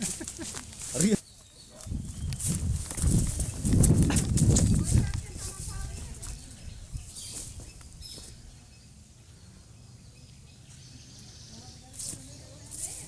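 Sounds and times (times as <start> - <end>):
hissy rustles: 0.0 - 8.6
faint bird chirps: 6.2 - 12.8.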